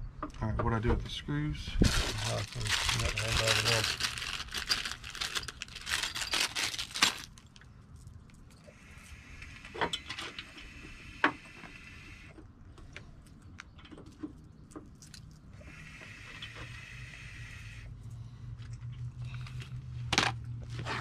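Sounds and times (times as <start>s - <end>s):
plastic bag crinkling: 1.8s - 8.5s.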